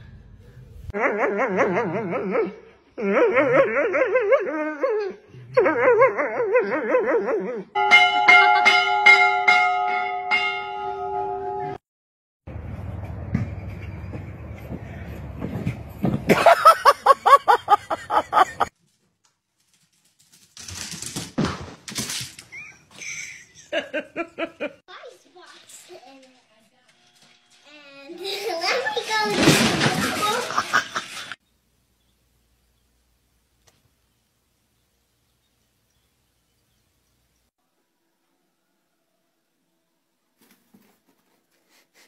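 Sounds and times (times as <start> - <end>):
dog howling: 1.0 - 7.8.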